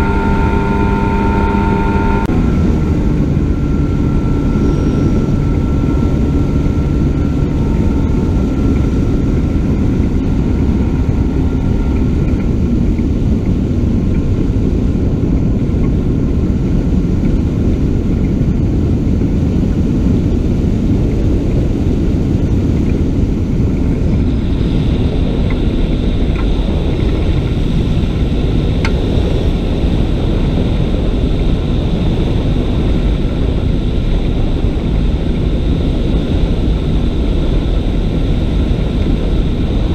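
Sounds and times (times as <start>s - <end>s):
thin steady high tone: 0.0s - 2.3s
ultralight engine and propeller: 0.0s - 39.9s
wind rush on microphone: 0.0s - 39.9s.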